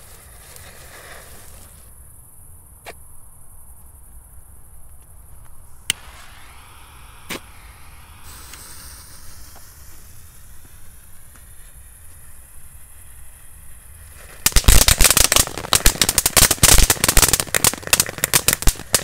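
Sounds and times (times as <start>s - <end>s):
firework hiss: 0.0s - 2.1s, 5.5s - 19.0s
firework pops: 5.8s - 12.3s, 14.0s - 19.0s.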